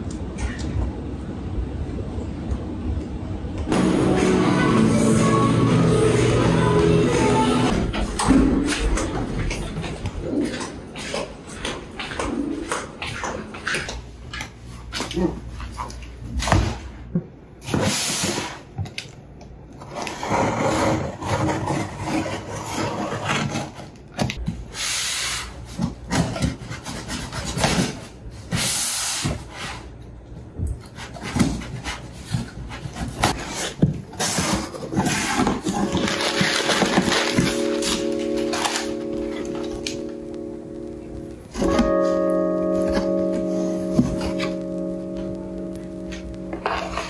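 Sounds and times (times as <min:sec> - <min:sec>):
packing paper rustling: 0:33.4 - 0:40.0.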